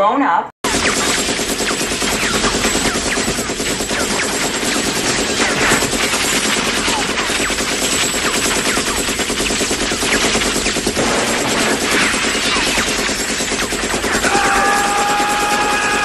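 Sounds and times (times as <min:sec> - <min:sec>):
machine gun automatic fire: 0:00.6 - 0:16.0.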